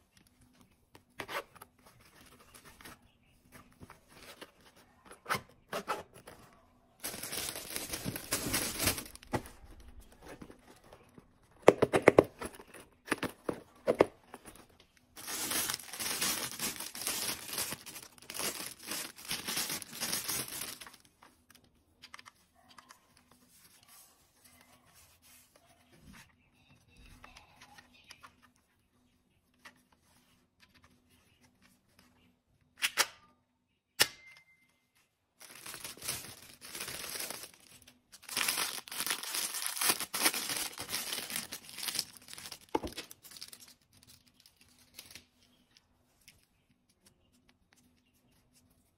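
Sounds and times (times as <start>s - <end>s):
plastic bag crinkling and tearing: 7.0s - 9.3s, 15.2s - 21.1s, 35.4s - 45.2s.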